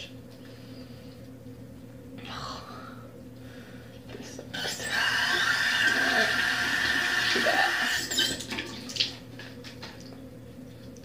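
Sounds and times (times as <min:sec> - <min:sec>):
tap water running into sink: 0:05.0 - 0:09.2.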